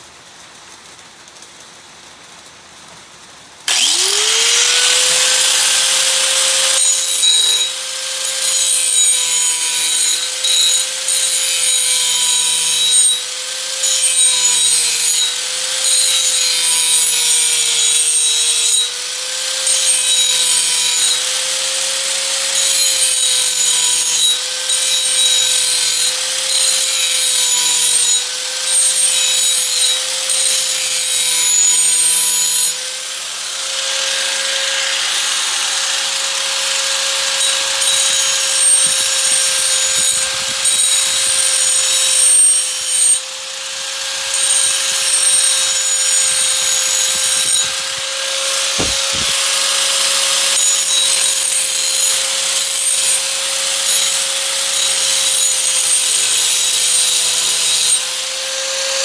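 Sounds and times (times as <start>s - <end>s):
angle grinder grinding metal: 3.7s - 59.0s
quick knocks: 48.7s - 49.6s.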